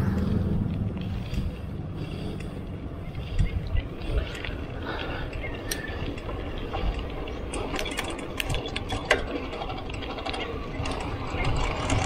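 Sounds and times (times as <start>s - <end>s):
tyres and wind rumble: 0.0s - 12.0s
bike freewheel clicking: 3.3s - 12.0s.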